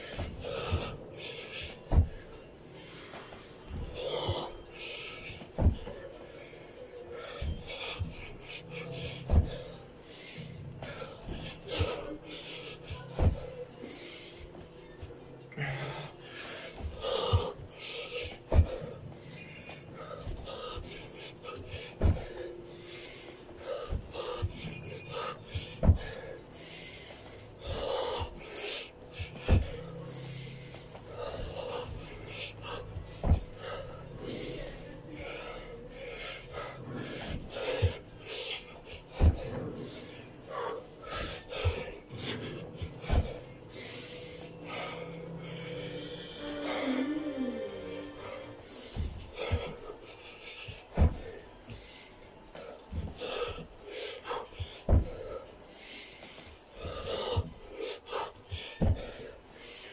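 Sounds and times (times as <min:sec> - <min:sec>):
man breathing hard and wheezing: 0:00.0 - 0:59.9
dull thuds on carpeted floor: 0:01.9 - 0:02.3, 0:05.6 - 0:05.9, 0:09.2 - 0:09.7, 0:13.1 - 0:13.5, 0:22.0 - 0:22.4, 0:25.8 - 0:26.3, 0:29.4 - 0:29.9, 0:33.0 - 0:34.0, 0:39.1 - 0:39.7, 0:42.8 - 0:43.4, 0:50.9 - 0:51.3, 0:54.6 - 0:55.2, 0:58.8 - 0:59.1
thumps on carpeted floor: 0:25.8 - 0:26.1, 0:33.2 - 0:33.6, 0:43.0 - 0:43.4, 0:54.9 - 0:55.2.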